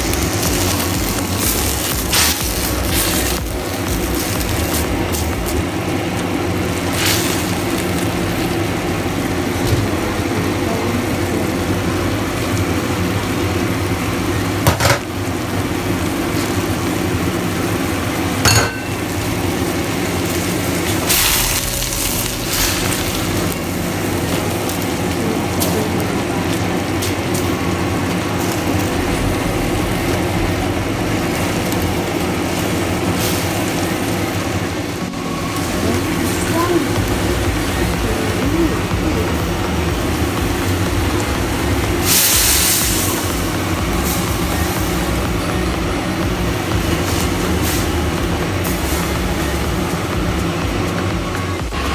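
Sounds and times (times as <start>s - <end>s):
greens sizzling in a wok: 0.0s - 51.9s
low hum: 18.5s - 51.9s.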